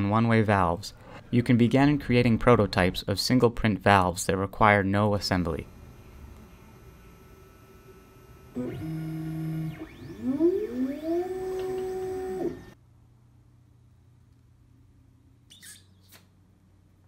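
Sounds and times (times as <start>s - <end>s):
printer motor whining: 5.7s - 12.8s.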